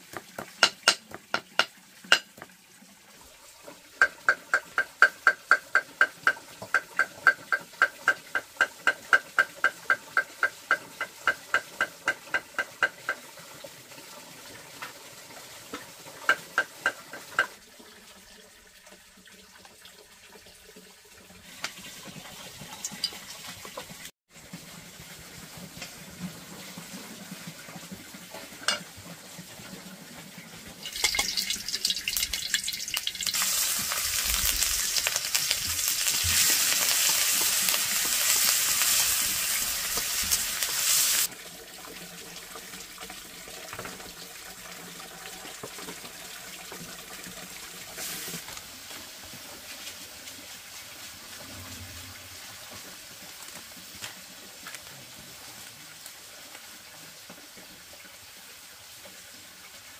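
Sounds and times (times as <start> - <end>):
utensil beating against bowl: 0.1 - 2.3, 4.0 - 13.2
food sizzling in pan: 30.8 - 41.3, 47.8 - 51.5, 52.2 - 59.9.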